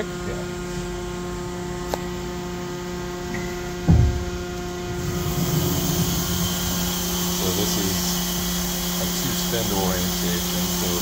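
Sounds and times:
machine hum: 0.0s - 11.0s
heavy door thump: 3.8s - 7.1s
door rumbling open: 3.8s - 7.3s
hiss: 5.0s - 11.0s.

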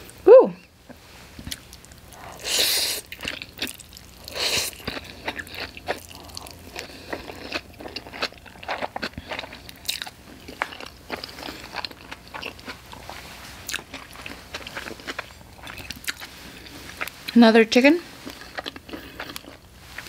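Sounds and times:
close-up chewing: 1.4s - 17.4s, 18.1s - 20.0s
person slurping noodles: 2.2s - 3.2s.

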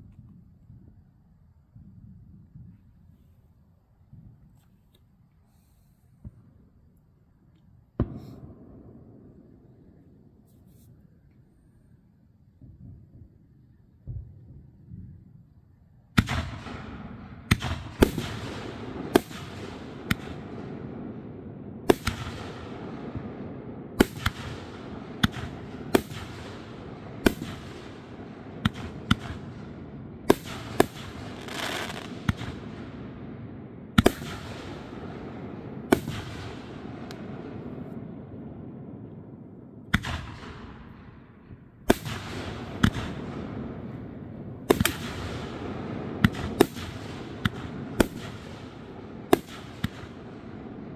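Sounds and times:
fireworks crackling hiss: 4.4s - 6.7s, 8.0s - 8.6s, 30.2s - 32.8s
fireworks bangs: 8.0s - 9.6s, 16.2s - 50.9s.

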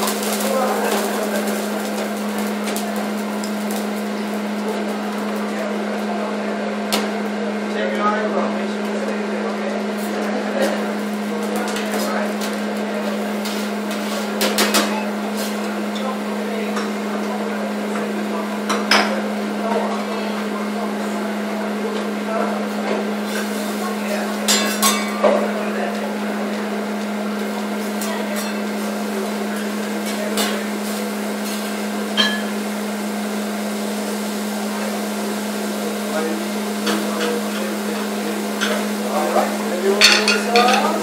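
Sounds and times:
griddle sizzling: 0.0s - 41.0s
restaurant background noise: 0.0s - 41.0s
metal utensils clinking on griddle: 24.5s - 25.3s, 32.2s - 32.5s, 40.0s - 41.0s.

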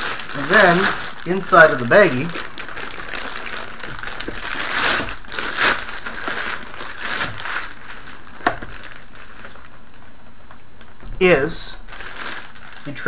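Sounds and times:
plastic bag crinkling: 0.0s - 13.0s
short knock: 11.0s - 11.9s.

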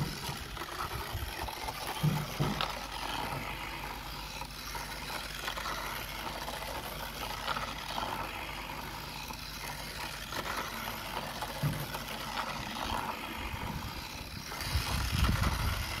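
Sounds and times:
toy train motor whirring: 0.0s - 16.0s
toy wheels clattering on track: 0.0s - 16.0s.

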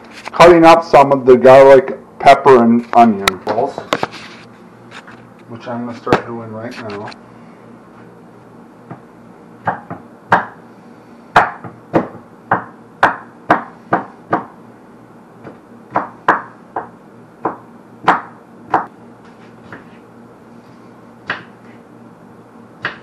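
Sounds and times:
knife chopping on cutting board: 9.6s - 10.6s, 11.3s - 14.5s, 15.4s - 18.9s, 19.7s - 20.0s, 21.2s - 21.6s, 22.8s - 23.0s.

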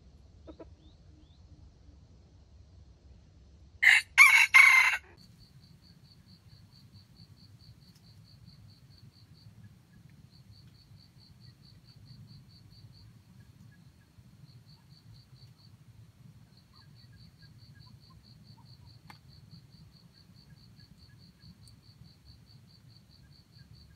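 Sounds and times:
rooster crowing: 3.8s - 5.2s.

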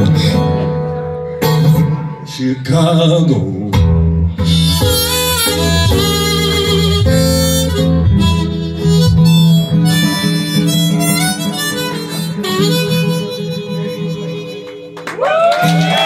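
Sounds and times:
acoustic guitar: 0.0s - 16.0s
blues harmonica solo: 4.3s - 15.0s.

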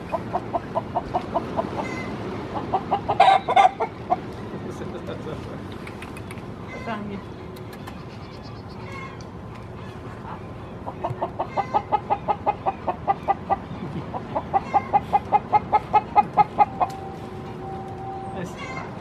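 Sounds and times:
hen clucking: 0.0s - 4.2s, 10.8s - 17.0s.

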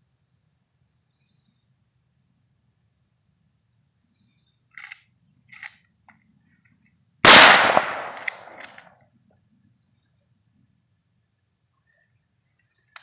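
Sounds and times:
rifle shot with echo: 7.2s - 8.8s.

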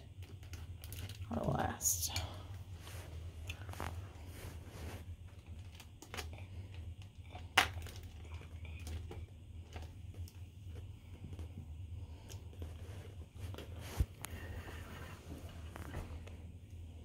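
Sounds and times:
plastic bag crinkling: 0.0s - 1.8s
steady low hum: 0.0s - 17.0s.

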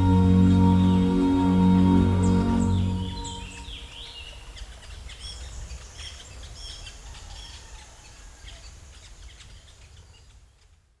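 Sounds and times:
low steady rumble: 0.0s - 4.0s.

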